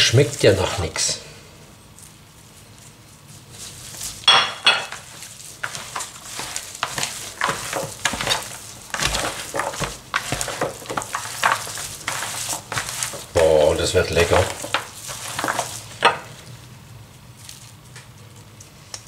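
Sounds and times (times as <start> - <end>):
hands squishing raw meat: 5.0 - 19.0.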